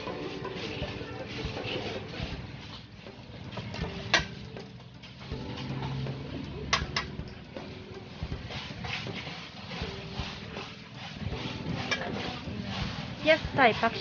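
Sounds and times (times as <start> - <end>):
market stall background noise: 0.0 - 14.0.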